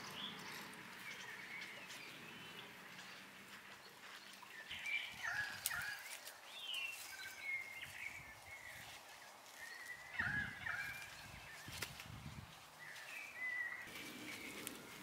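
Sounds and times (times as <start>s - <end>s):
soil and plants rustling: 0.0s - 15.0s
birds warbling: 4.0s - 11.8s, 12.7s - 15.0s.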